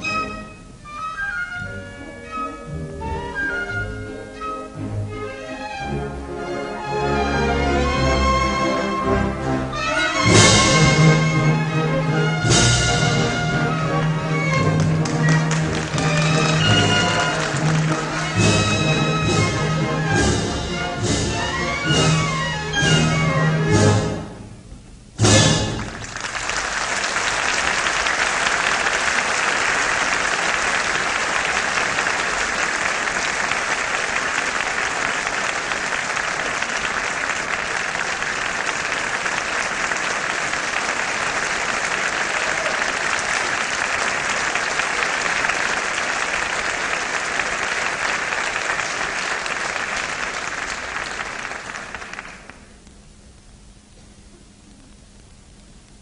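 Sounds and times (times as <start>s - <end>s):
orchestral chord: 4.7s - 24.5s
audience applauding: 12.4s - 20.2s, 25.5s - 52.8s.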